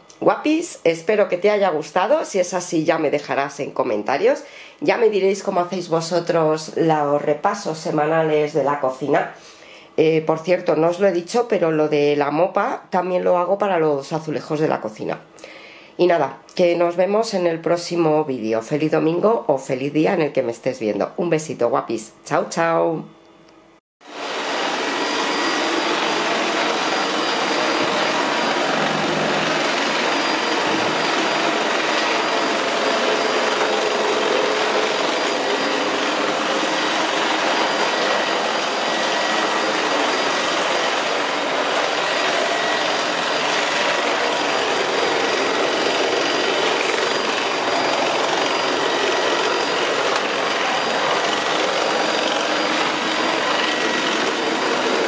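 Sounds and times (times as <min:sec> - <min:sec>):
stick vacuum running: 0:24.1 - 0:55.0.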